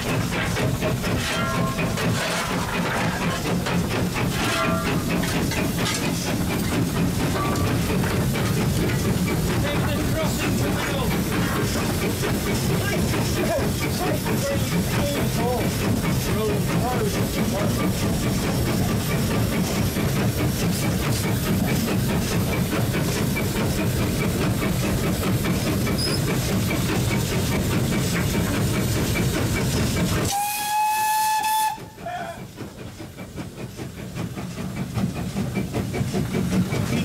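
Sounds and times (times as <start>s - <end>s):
steam locomotive rumble and hiss: 0.0s - 37.0s
steam whistle blast: 30.3s - 32.0s.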